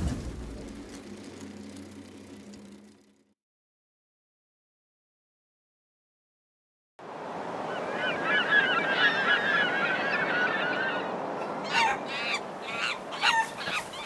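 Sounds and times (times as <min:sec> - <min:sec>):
flock of birds chattering: 0:07.6 - 0:14.0.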